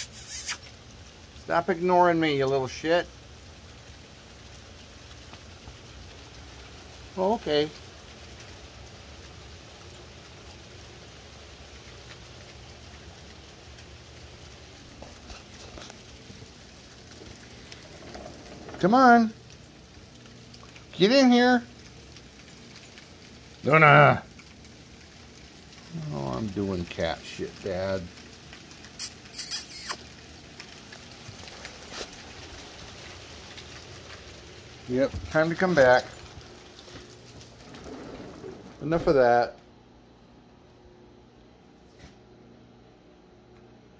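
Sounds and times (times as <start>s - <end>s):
brief loud hiss: 0.0s - 0.7s
hail pattering: 0.0s - 40.6s
rain falling: 0.0s - 42.8s.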